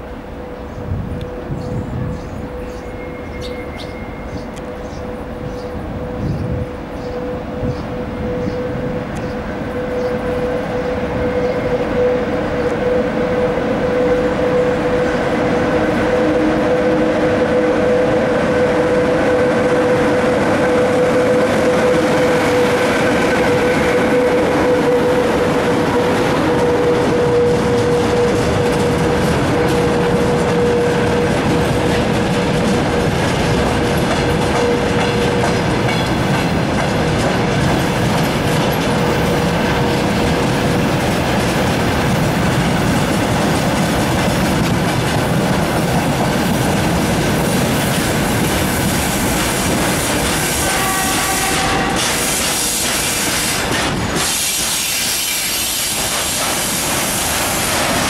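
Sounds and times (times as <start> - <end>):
electric locomotive passing: 0.0 - 58.0
freight train wheels rolling: 0.0 - 58.0
steady whine: 4.5 - 33.2.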